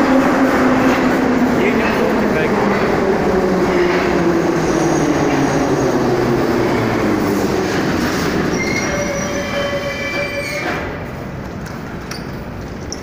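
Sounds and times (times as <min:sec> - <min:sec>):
train wheels rumbling on rails: 0:00.0 - 0:13.0
wheel and brake squeals: 0:08.5 - 0:10.9.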